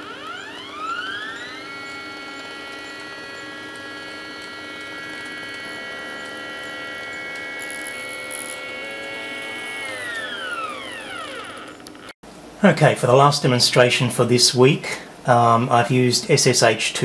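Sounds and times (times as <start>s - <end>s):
stepper motors whining: 0.0s - 12.2s.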